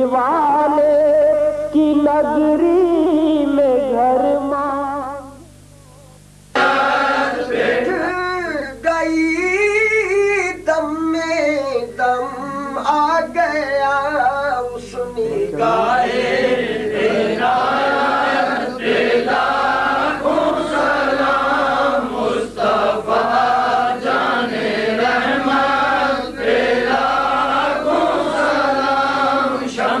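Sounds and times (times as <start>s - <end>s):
men chanting together: 6.6s - 8.2s, 15.4s - 30.0s.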